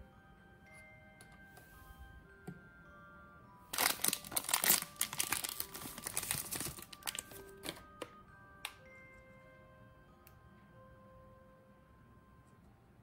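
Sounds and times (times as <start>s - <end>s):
plastic bag crinkling: 3.8s - 7.8s.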